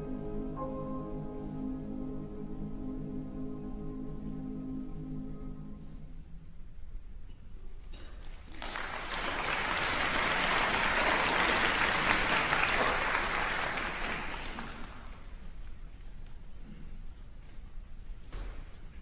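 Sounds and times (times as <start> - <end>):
audience applauding: 8.3 - 15.3.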